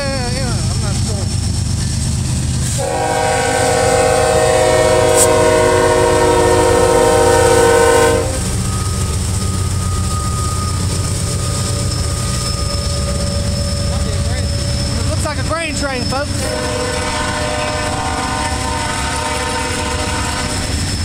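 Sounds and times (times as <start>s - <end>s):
train rumbling past: 0.0s - 21.0s
locomotive air horn: 2.7s - 8.6s, 16.4s - 20.7s.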